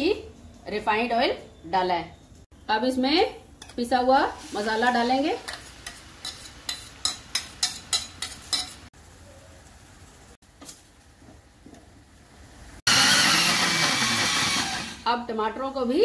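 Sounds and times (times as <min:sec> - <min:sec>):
mixer grinder running: 0:12.9 - 0:15.0.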